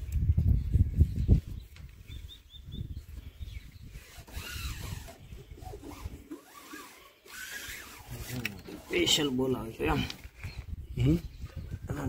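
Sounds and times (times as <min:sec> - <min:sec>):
hands rubbing decal: 0:04.0 - 0:09.5.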